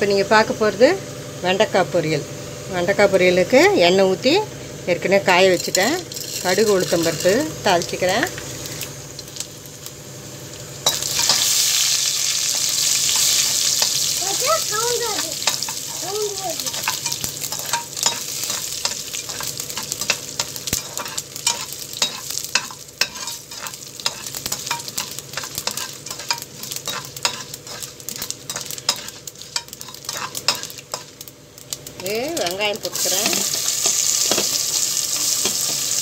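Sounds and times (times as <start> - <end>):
seeds sizzling in hot oil: 0.0 - 36.0
metal spatula scraping pan: 16.6 - 31.1.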